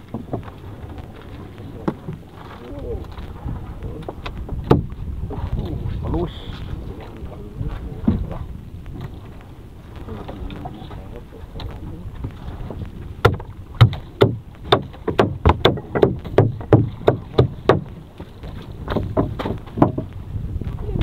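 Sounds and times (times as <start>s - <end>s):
low rumble of wind and sea: 0.0s - 21.0s
net knocking against boat hull: 3.4s - 5.0s, 13.2s - 20.2s.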